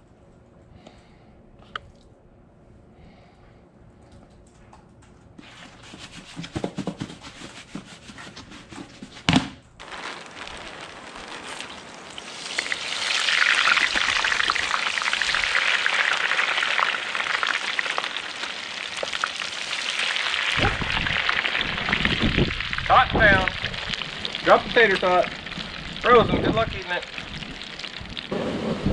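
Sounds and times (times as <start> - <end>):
oil sizzling loudly: 9.8 - 28.9.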